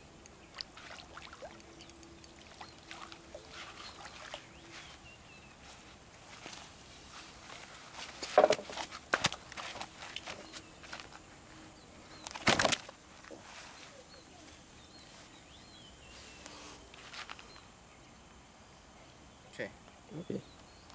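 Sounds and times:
fish thumping and rustling: 0:07.9 - 0:11.1, 0:12.3 - 0:13.0
faint bird chirps: 0:13.4 - 0:20.9.

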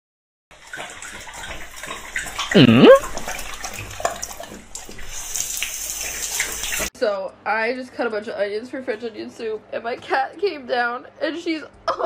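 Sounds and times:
water running from a tap: 0:00.5 - 0:06.9.

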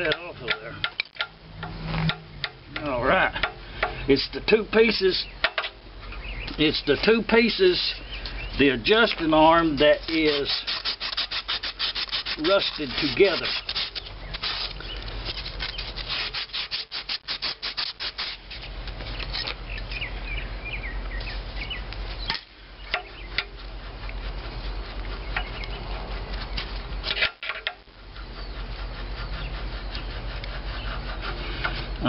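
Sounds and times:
metal on metal clicks: 0:00.0 - 0:04.0
steel tools scraping rusty iron: 0:00.0 - 0:05.8, 0:08.8 - 0:20.0, 0:22.3 - 0:23.7, 0:27.0 - 0:27.9.

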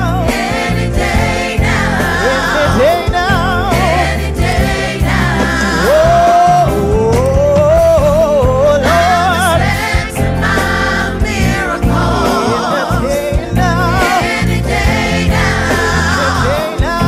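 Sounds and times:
choir singing with band: 0:00.0 - 0:17.0
drum kit beat: 0:00.0 - 0:17.0
low bass notes: 0:00.0 - 0:17.0
lead voice holding note: 0:05.6 - 0:07.2.

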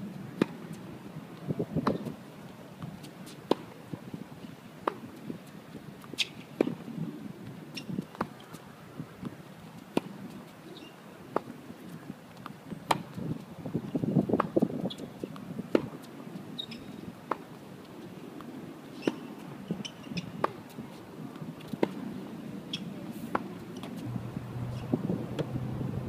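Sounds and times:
tennis ball bouncing: 0:22.7 - 0:25.6.

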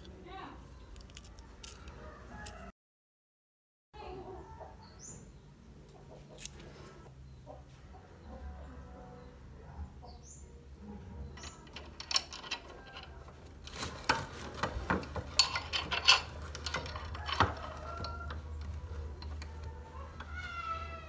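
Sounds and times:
metal parts clinking on vise: 0:11.4 - 0:20.3.

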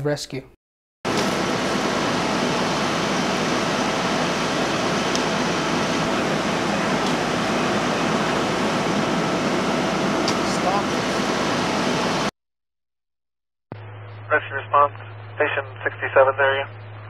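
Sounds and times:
fire engine running: 0:01.1 - 0:12.3.

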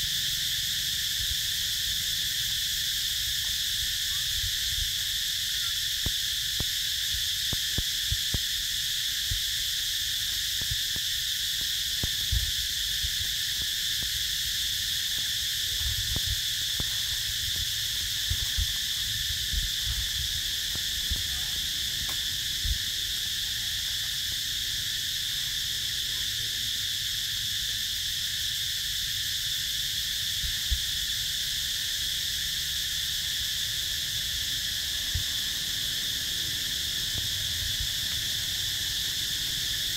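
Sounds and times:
insect chorus buzzing: 0:00.0 - 0:39.9
soft low thumps: 0:15.8 - 0:21.4.

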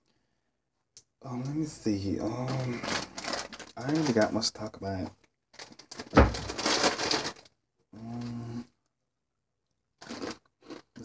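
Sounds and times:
person humming: 0:08.0 - 0:08.7.

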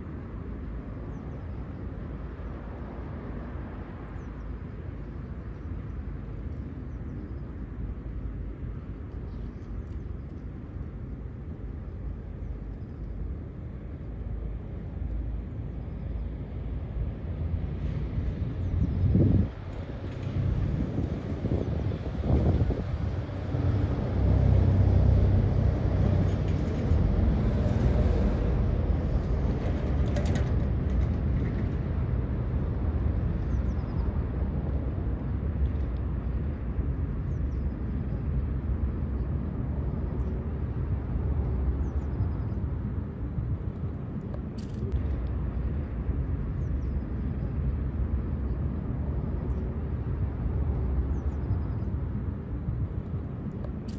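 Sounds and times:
low rumble of road traffic: 0:00.0 - 0:53.9.

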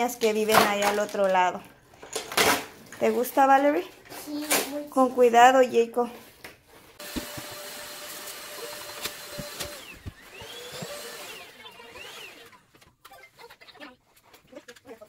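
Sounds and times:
vacuum cleaner running over carpet: 0:07.0 - 0:11.4.

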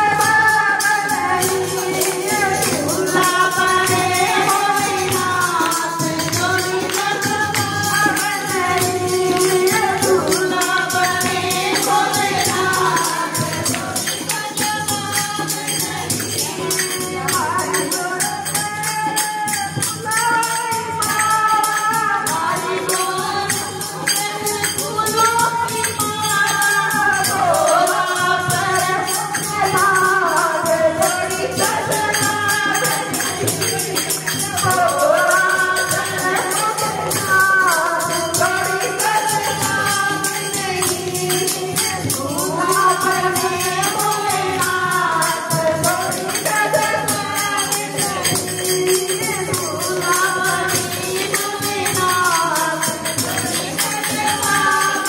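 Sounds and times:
jingling percussion: 0:00.0 - 0:55.0
woman singing into a microphone: 0:00.0 - 0:55.0
hand claps: 0:04.3 - 0:15.6, 0:45.6 - 0:55.0.

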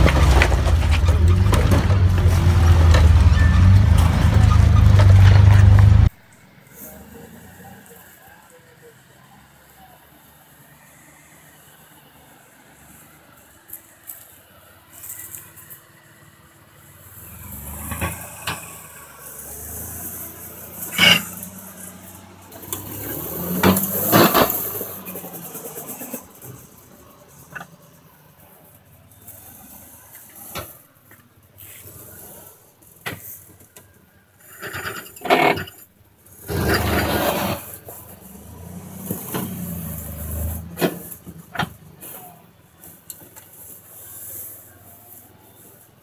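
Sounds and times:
vehicle knocks and rattles: 0:00.0 - 0:06.1
off-road vehicle engine straining: 0:00.0 - 0:46.0.

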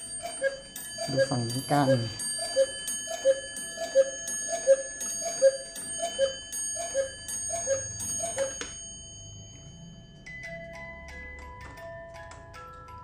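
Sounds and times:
cuckoo clock call: 0:00.0 - 0:09.3
clock bell strike: 0:00.0 - 0:10.0.

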